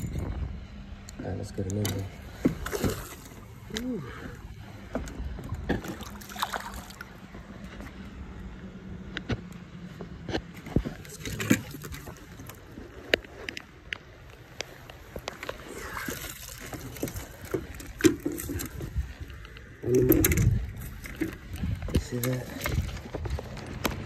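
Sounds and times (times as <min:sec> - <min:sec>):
fish splashing in water: 0:02.4 - 0:03.6, 0:05.8 - 0:07.2, 0:15.5 - 0:18.9
fishing gear knocks and clicks: 0:10.3 - 0:24.0.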